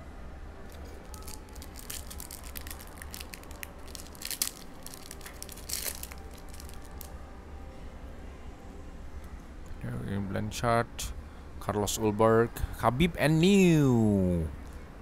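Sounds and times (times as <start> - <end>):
foil wrapper crinkling and tearing: 0.7 - 7.1.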